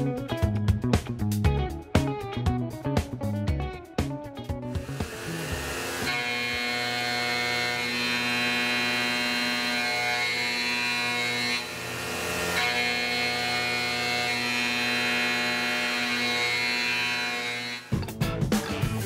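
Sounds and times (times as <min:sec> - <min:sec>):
milling machine whine: 0:04.7 - 0:18.0.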